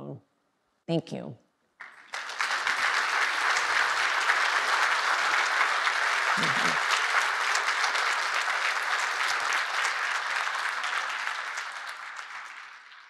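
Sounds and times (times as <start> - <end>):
audience applauding: 1.8 - 13.0.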